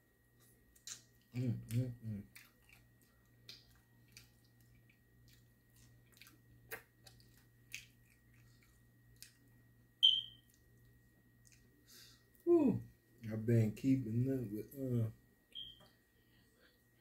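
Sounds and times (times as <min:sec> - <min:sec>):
man eating and chewing: 0:00.3 - 0:09.7, 0:10.5 - 0:12.4
short high-pitched beep: 0:10.0 - 0:10.4, 0:15.6 - 0:15.8.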